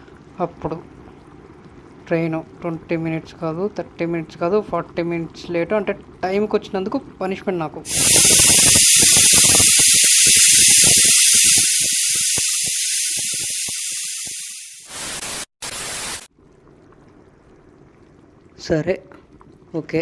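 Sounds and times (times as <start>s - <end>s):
loud hiss: 7.9s - 16.3s
short bursts of hiss: 7.9s - 16.3s.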